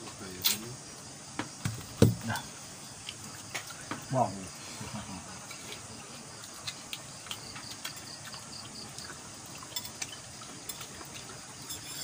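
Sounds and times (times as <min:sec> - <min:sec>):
night insects trilling: 0:00.0 - 0:12.0
spoon and dishes clinking: 0:11.6 - 0:12.0.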